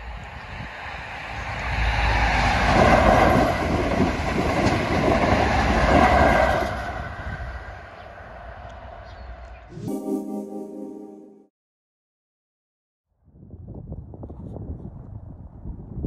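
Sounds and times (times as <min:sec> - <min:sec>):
train wheels rumbling on rails: 0:01.2 - 0:07.8.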